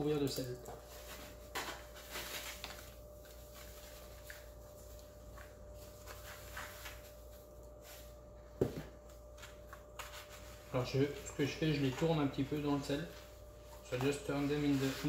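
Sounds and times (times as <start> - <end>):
gritty rustling of salt: 13.8 - 15.0.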